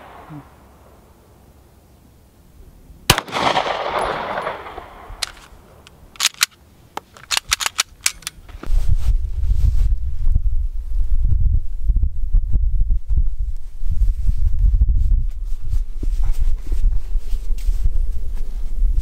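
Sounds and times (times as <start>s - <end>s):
pistol shot echoing: 3.1s - 5.2s
sharp clicks and knocks: 5.2s - 8.5s.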